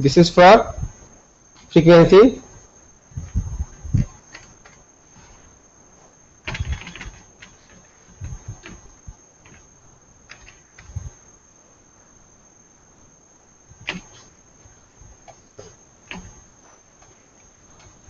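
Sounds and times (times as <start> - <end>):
faint high-pitched whine: 0.0 - 18.0
keyboard clicks: 6.4 - 9.7, 10.3 - 11.0, 13.8 - 14.3.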